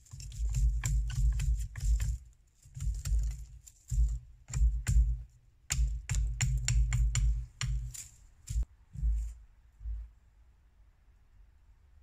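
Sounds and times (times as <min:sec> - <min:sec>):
knife chopping a sapling: 0:00.0 - 0:08.6.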